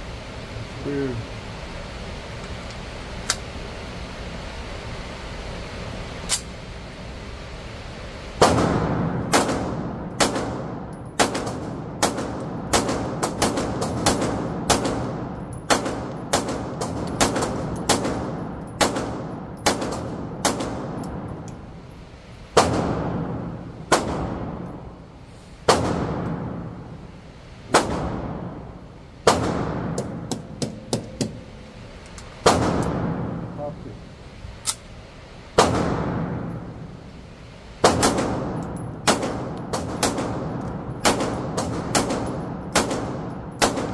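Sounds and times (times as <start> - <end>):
pistol shots ringing indoors: 8.4 - 21.6, 22.5 - 25.0, 25.6 - 27.0, 27.7 - 31.6, 32.4 - 33.5, 35.5 - 36.9, 37.8 - 43.9.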